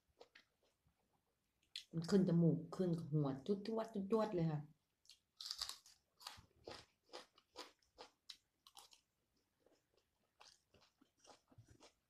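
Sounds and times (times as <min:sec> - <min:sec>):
close-up wet chewing crunches: 0:09.7 - 0:12.0.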